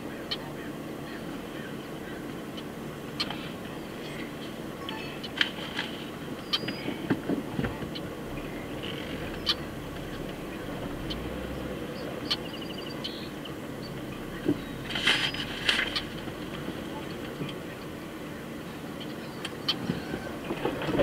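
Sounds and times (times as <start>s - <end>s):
car rolling slowly: 0.0s - 21.0s.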